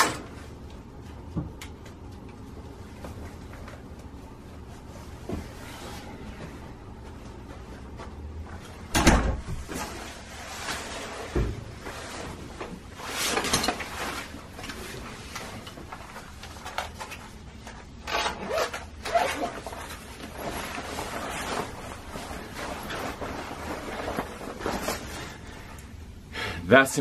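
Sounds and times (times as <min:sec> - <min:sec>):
nylon bag rustling: 0:11.8 - 0:25.7.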